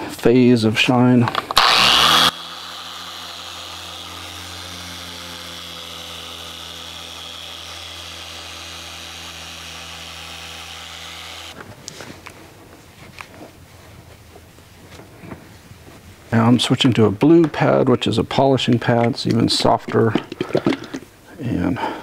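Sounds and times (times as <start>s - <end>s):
electric orbital polisher running: 1.5s - 11.6s.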